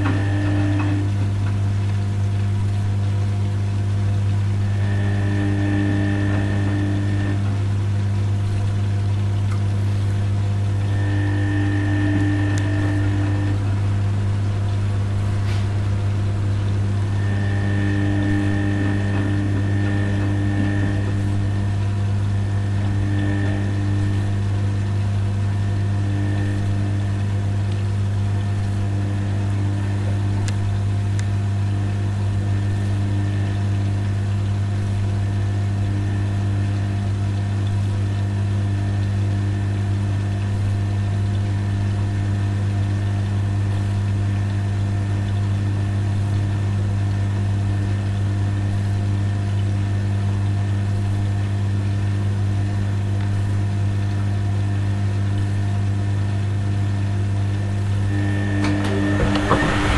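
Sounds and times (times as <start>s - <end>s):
washing machine drain pump humming: 0.0s - 59.9s
faint tones above hum: 57.6s - 59.9s.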